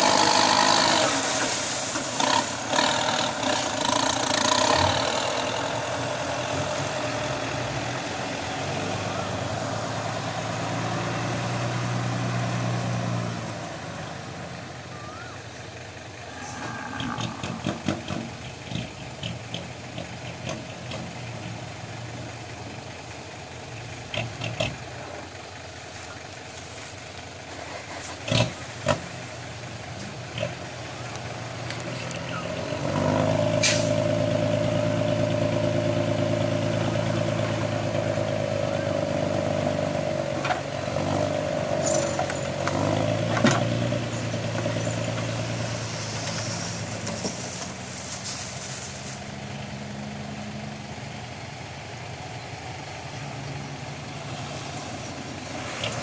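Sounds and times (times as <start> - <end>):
soil load sliding out: 0.0 - 5.2, 31.7 - 35.1
diesel engine idling: 0.0 - 56.0
short sharp hiss: 33.6 - 34.0.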